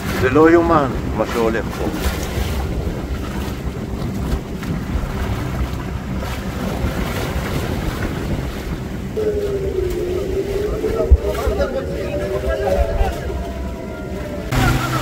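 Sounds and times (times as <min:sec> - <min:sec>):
choppy water sloshing: 0:00.0 - 0:15.0
wind buffeting microphone: 0:00.0 - 0:15.0.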